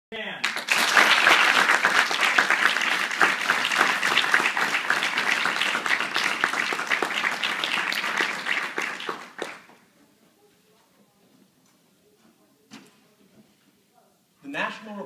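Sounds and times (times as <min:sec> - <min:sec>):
audience applauding: 0:00.4 - 0:09.8.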